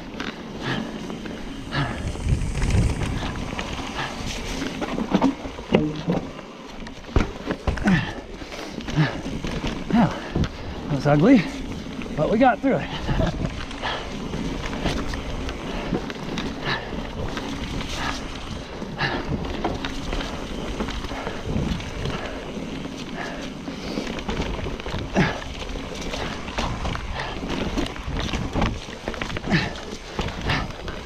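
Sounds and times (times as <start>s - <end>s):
bike rattling and knocking: 0.0s - 31.0s
bike tyre noise: 0.0s - 31.0s
wind noise on microphone: 1.5s - 5.7s.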